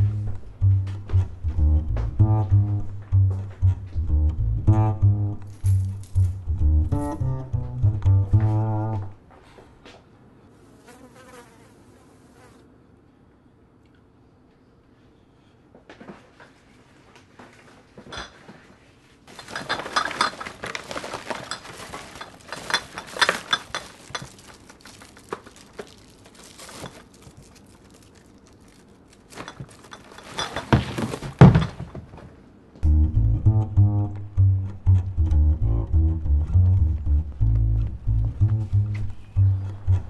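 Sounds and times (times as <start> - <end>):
music with plucked bass: 0.0 - 9.2, 32.8 - 40.0
plastic trash bag rustling: 19.2 - 32.3.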